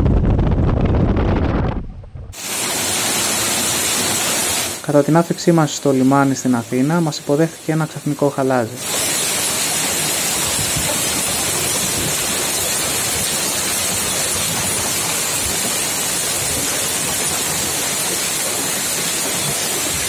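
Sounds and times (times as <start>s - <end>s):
hail and rain pelting down: 2.4s - 8.1s, 8.8s - 20.0s.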